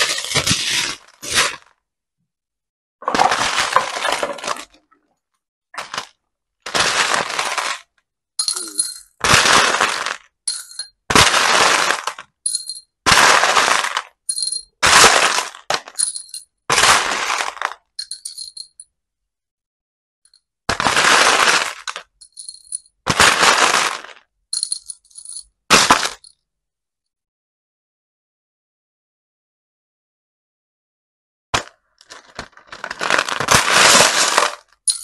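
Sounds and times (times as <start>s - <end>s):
beads clinking against glass: 8.4s - 9.2s, 10.5s - 11.0s, 12.4s - 12.9s, 14.3s - 14.8s, 15.9s - 16.5s, 18.0s - 18.8s, 22.2s - 23.0s, 24.6s - 25.5s, 33.7s - 35.0s
plastic beads rattling: 8.4s - 10.9s, 11.9s - 16.4s, 17.2s - 18.8s, 20.9s - 22.9s, 23.7s - 25.4s, 32.2s - 35.0s.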